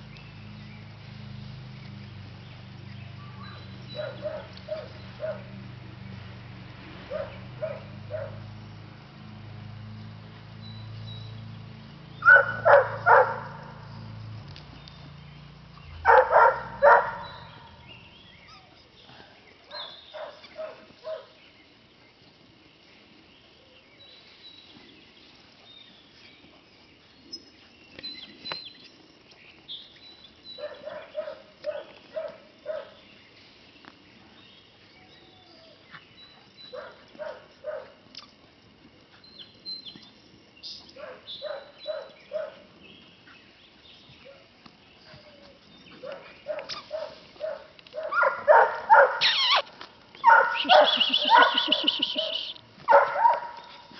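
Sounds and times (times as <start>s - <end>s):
puppy barking: 3.4s - 5.5s, 7.1s - 8.4s, 12.2s - 13.7s, 16.0s - 17.7s, 19.7s - 21.3s, 30.6s - 33.0s, 36.7s - 38.0s, 41.0s - 42.6s, 46.0s - 49.6s, 50.2s - 53.8s
faint bird chirps: 17.0s - 21.6s, 50.2s - 52.6s.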